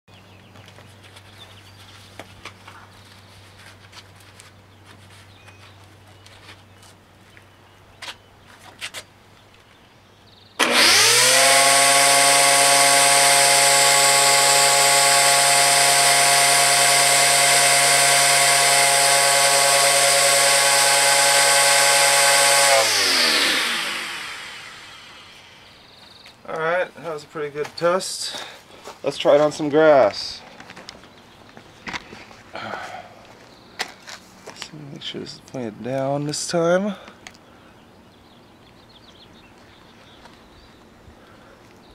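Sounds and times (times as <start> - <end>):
string trimmer motor whine: 10.6 - 25.9.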